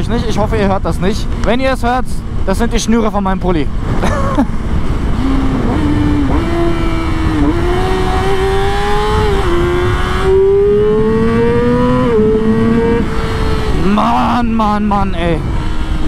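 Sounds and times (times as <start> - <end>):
wind noise on microphone: 3.7 - 16.0
motorcycle engine accelerating: 4.5 - 16.0.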